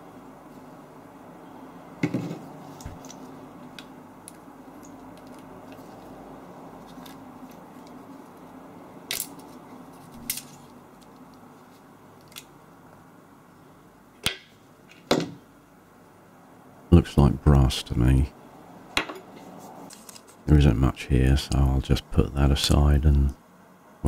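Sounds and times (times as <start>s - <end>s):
low background noise: 0.0s - 24.0s
small metal parts clinking: 9.1s - 9.6s.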